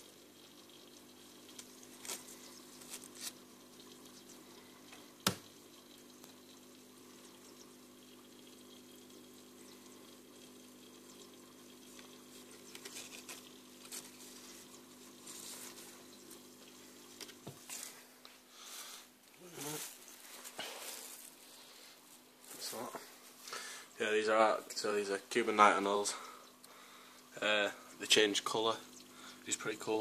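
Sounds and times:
pump humming: 0:00.0 - 0:30.0
water trickling: 0:00.0 - 0:30.0.

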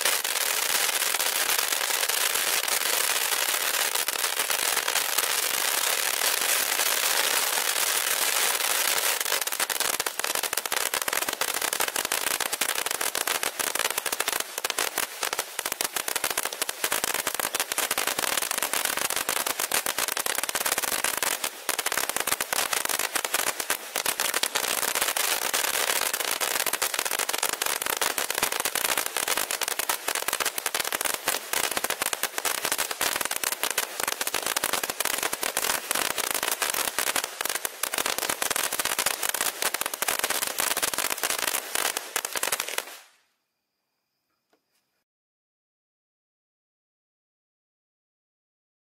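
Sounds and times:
firework hiss: 0:00.0 - 0:43.2
firework pops and crackles: 0:00.0 - 0:43.2.

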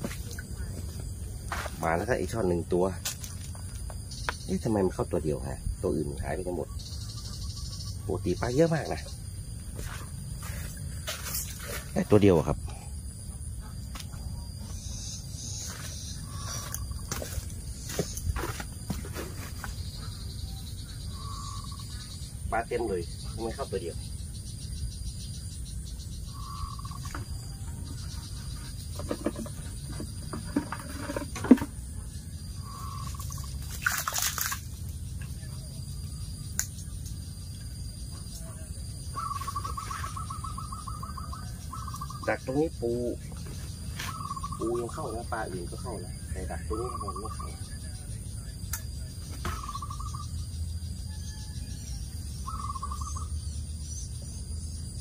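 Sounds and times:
bird trilled call: 0:19.8 - 0:24.1, 0:26.1 - 0:29.8, 0:32.6 - 0:33.6, 0:39.0 - 0:43.2, 0:43.9 - 0:47.8, 0:49.3 - 0:53.5.

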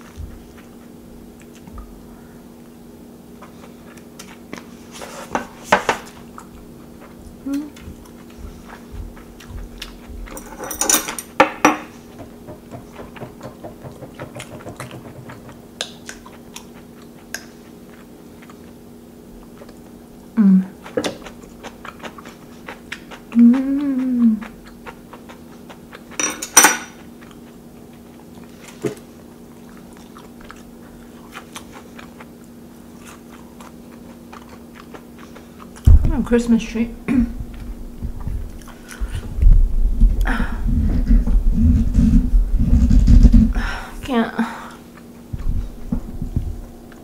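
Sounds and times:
chewing: 0:00.0 - 0:10.6, 0:12.8 - 0:35.9, 0:37.4 - 0:39.4, 0:44.8 - 0:47.0
person humming mm: 0:07.4 - 0:07.9, 0:20.4 - 0:20.9, 0:23.3 - 0:24.6, 0:40.2 - 0:44.8
utensils clattering: 0:10.3 - 0:11.8, 0:26.2 - 0:26.9.

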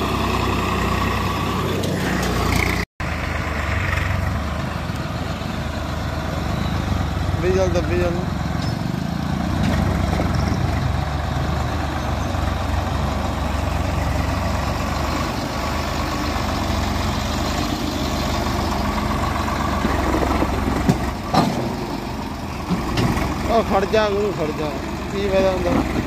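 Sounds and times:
tractor diesel engine running: 0:00.0 - 0:26.0.

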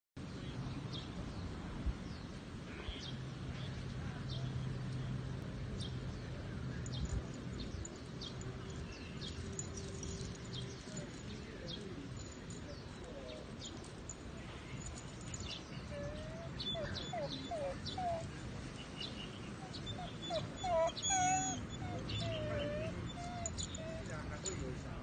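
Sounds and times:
low outdoor background hum: 0:00.2 - 0:25.0
small birds chirping: 0:05.8 - 0:24.7.

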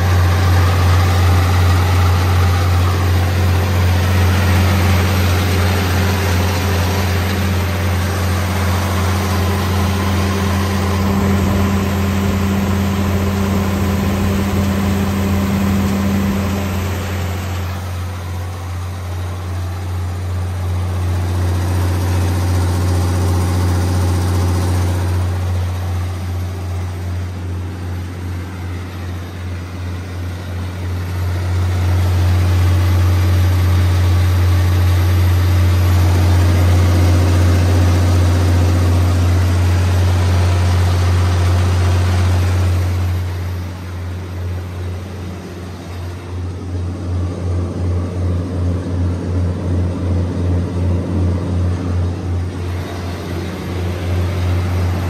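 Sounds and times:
diesel generator engine drone: 0:00.0 - 0:55.0.

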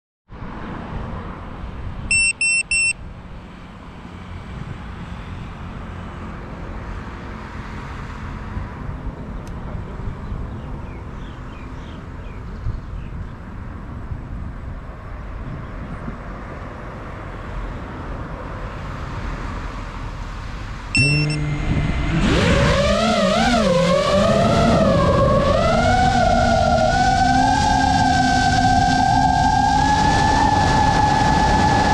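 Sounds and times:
roadside traffic noise: 0:00.3 - 0:31.9
short high electronic beeps: 0:02.1 - 0:03.0, 0:21.0 - 0:21.6
drone motors whining: 0:21.0 - 0:31.9.

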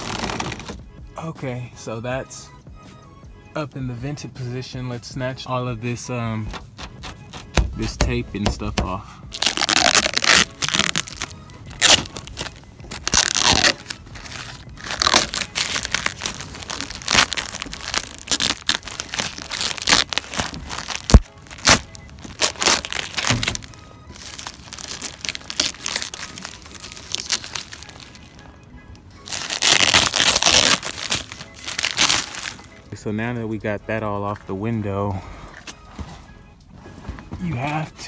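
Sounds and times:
plastic sheeting tearing and crinkling: 0:00.0 - 0:00.8, 0:09.3 - 0:28.4, 0:29.2 - 0:32.7
background music: 0:00.0 - 0:38.0.

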